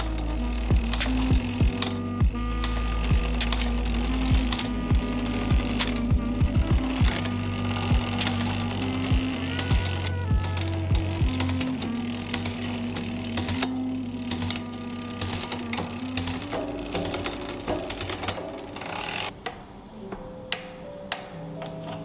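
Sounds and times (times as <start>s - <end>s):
bike hub ticking: 0.0s - 19.6s
background music: 0.0s - 22.0s.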